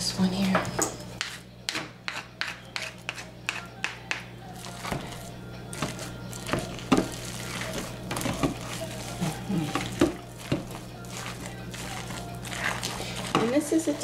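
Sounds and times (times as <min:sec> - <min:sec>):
steady low hum: 0:00.0 - 0:14.0
spatula scraping soap paste: 0:02.1 - 0:03.6, 0:04.7 - 0:14.0.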